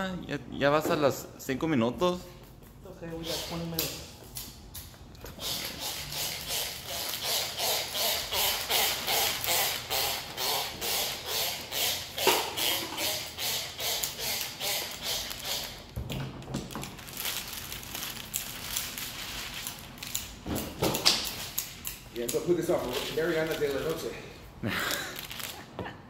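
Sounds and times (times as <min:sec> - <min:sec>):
spray bottle squirting: 0:05.4 - 0:15.8
wet film rustling: 0:16.8 - 0:20.2, 0:22.6 - 0:24.1.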